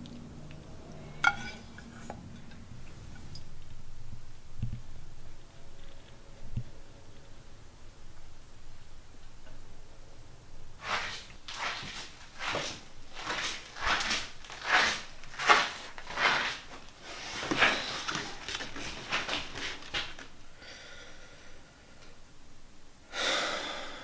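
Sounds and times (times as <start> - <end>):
person breathing hard and fast: 20.5 - 21.9, 23.1 - 24.0.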